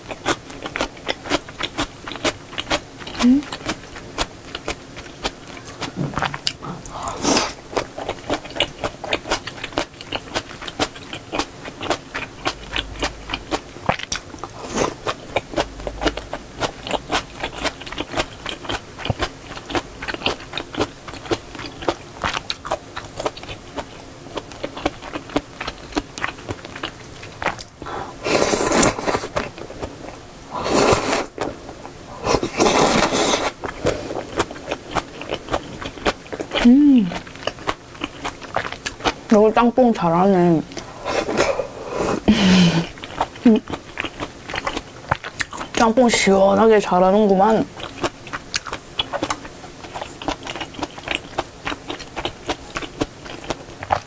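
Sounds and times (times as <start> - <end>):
chewing with wet mouth clicks: 0.0 - 27.8, 33.4 - 39.2, 42.8 - 45.9, 47.3 - 54.0
loud slurps of noodles: 28.2 - 29.3.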